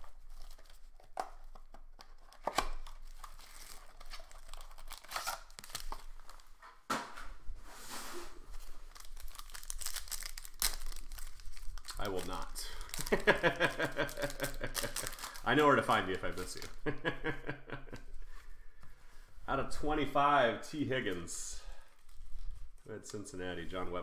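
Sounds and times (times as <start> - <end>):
foil pack crinkling and tearing: 0.0 - 6.5, 8.6 - 16.9
shrink wrap crinkling: 0.0 - 6.6, 8.5 - 17.0, 21.6 - 23.2.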